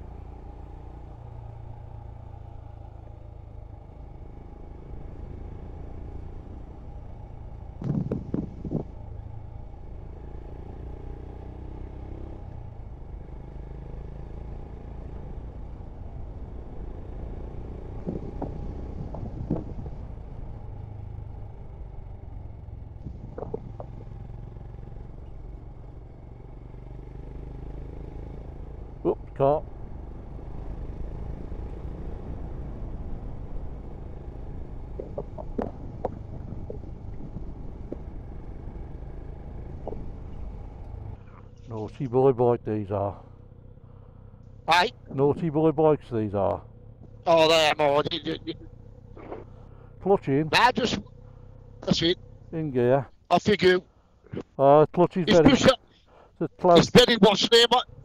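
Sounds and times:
motorcycle engine cruising: 0.0 - 58.0
wind noise on microphone: 7.8 - 8.9, 18.1 - 20.0, 23.0 - 23.9.

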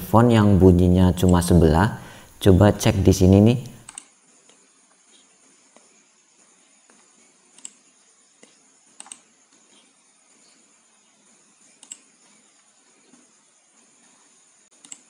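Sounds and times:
faint steady hiss: 0.0 - 15.0
computer mouse clicks: 3.6 - 5.9, 6.8 - 7.8, 8.4 - 10.0, 11.7 - 12.3, 14.7 - 15.0.

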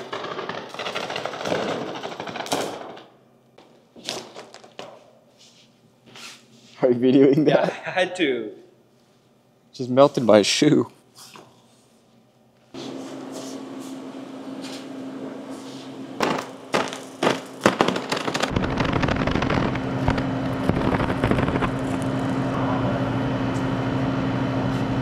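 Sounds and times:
cardboard burning crackle: 0.0 - 3.0, 16.2 - 22.6
cardboard popping and crackling: 0.0 - 3.1, 4.0 - 4.9, 16.2 - 22.6
laser electrical hum: 12.6 - 25.0.

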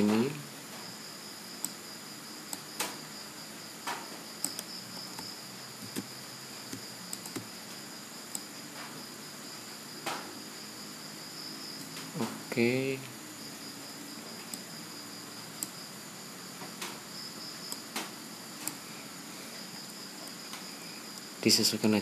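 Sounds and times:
faint mouse clicks: 4.4 - 6.1, 6.7 - 7.5.

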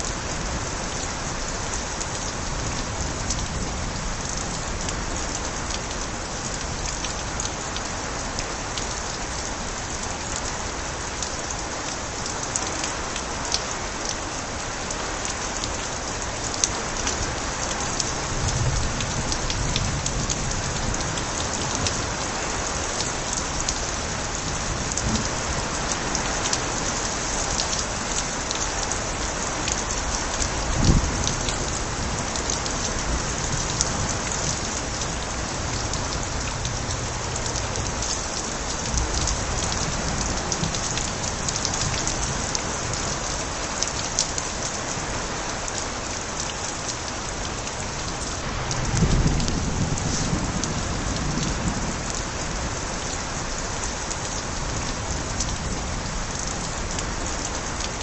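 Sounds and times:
steady rain pouring: 0.0 - 58.0
water splashing from gutters: 0.0 - 58.0.

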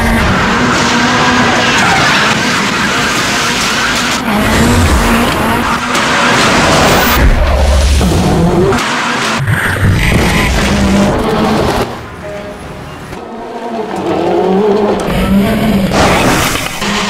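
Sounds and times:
rally car engine revving hard: 0.0 - 12.0.

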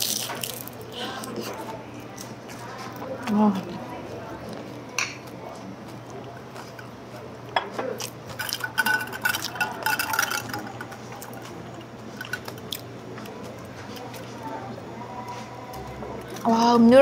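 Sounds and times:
straw clinking in a glass: 8.3 - 11.5.

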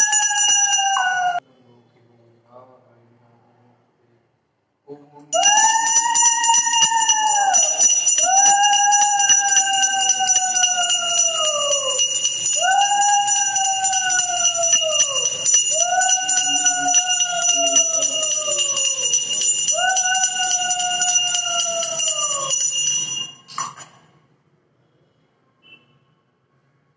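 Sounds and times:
hand bell ringing rapidly: 0.0 - 1.4, 5.4 - 23.6.

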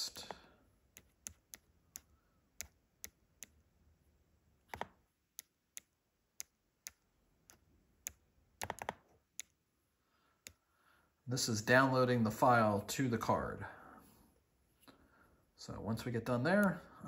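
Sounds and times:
stylus tapping touchscreen: 0.1 - 3.7, 4.6 - 9.6, 10.4 - 10.6, 16.4 - 16.9.

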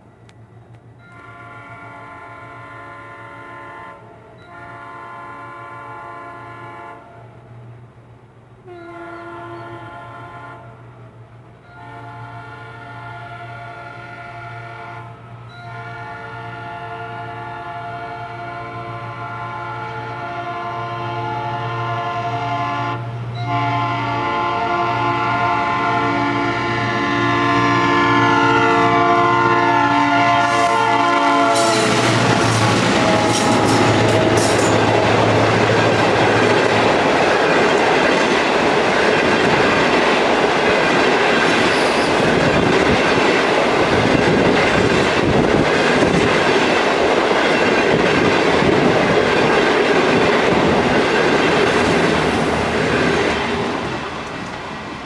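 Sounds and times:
locomotive air horn chord: 1.1 - 7.4, 8.6 - 10.8, 11.7 - 36.4
diesel engines droning: 25.8 - 40.0
train wheels clattering on rails: 30.4 - 54.9.

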